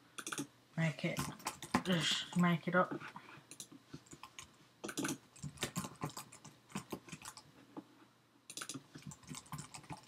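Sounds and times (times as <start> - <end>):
typing on computer keyboard: 0.2 - 0.5, 1.2 - 2.0, 3.5 - 7.5, 8.5 - 10.0.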